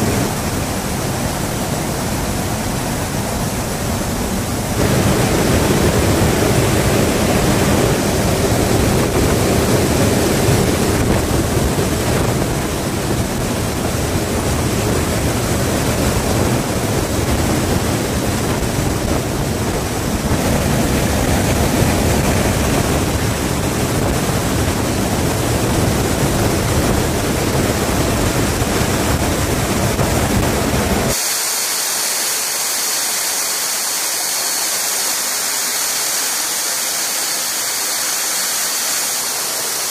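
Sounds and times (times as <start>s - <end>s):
aircraft engine rumble: 0.0s - 39.9s
wind rushing: 4.4s - 31.3s.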